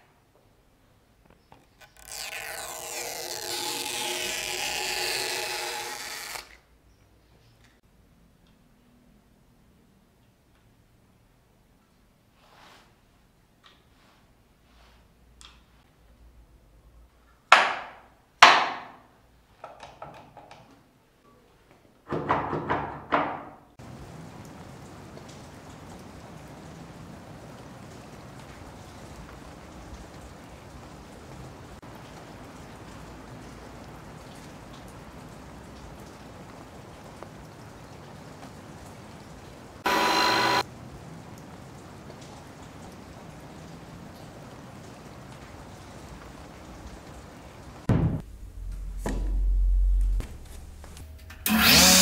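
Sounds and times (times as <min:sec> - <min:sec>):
wooden knocks and clicks: 0:19.6 - 0:20.8
steady rain falling: 0:23.8 - 0:51.0.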